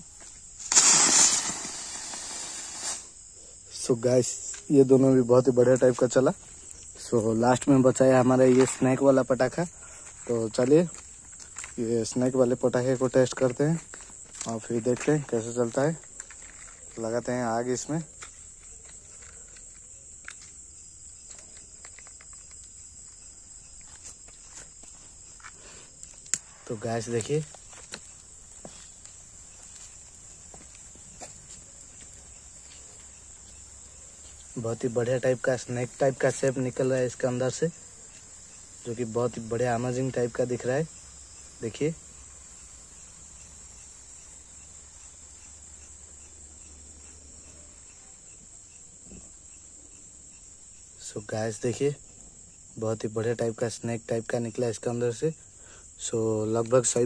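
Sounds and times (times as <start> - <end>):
crickets chirring: 0.0 - 57.0.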